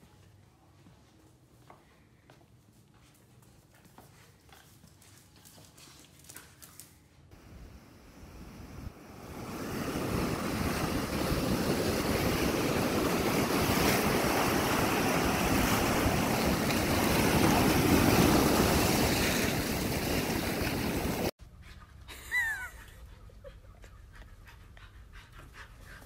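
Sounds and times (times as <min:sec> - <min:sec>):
ocean surf breaking on beach: 0:07.4 - 0:21.3.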